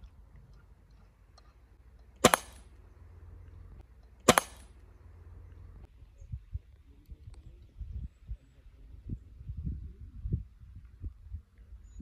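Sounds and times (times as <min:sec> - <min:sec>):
rifle shots: 0:02.2 - 0:02.7, 0:04.2 - 0:04.8.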